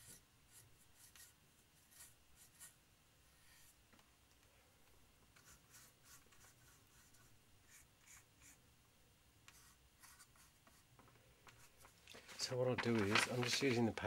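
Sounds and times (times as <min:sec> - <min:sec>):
pencil scratching on plastic: 0:00.0 - 0:03.8, 0:05.4 - 0:08.6, 0:09.5 - 0:10.8.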